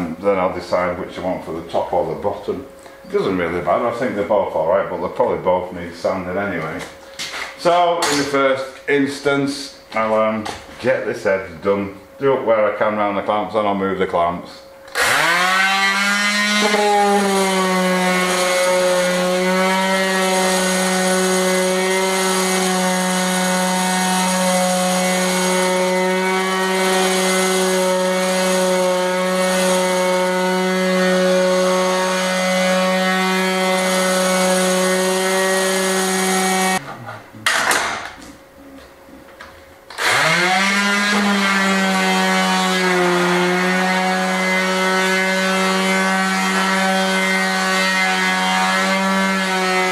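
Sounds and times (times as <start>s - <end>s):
electric orbital sander running: 14.9s - 36.8s, 39.9s - 49.9s.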